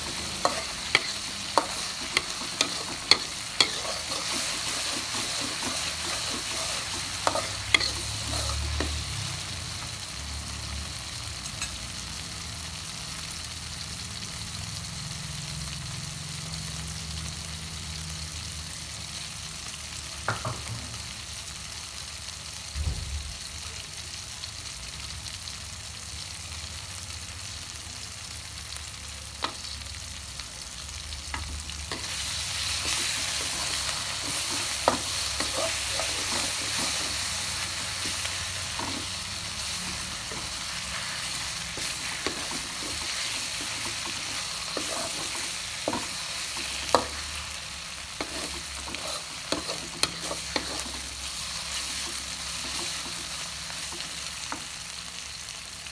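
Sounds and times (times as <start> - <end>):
spatula scraping a metal pan: 0.0 - 8.9, 31.9 - 47.2, 48.2 - 53.4
spice paste sizzling in a wok: 0.0 - 55.9.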